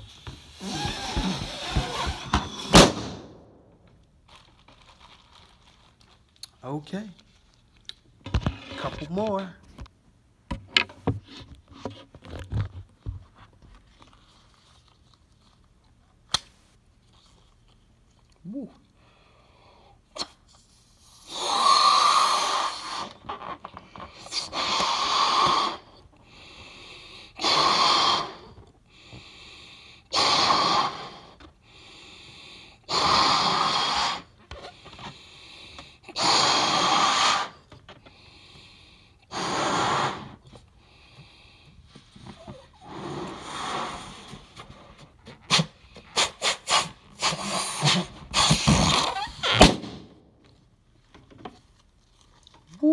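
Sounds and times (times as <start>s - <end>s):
breaths blowing up balloon: 0.0s - 3.7s, 18.9s - 50.3s.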